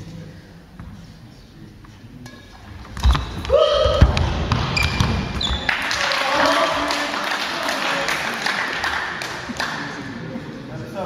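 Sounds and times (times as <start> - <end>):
shoe squeaks: 4.7 - 5.7.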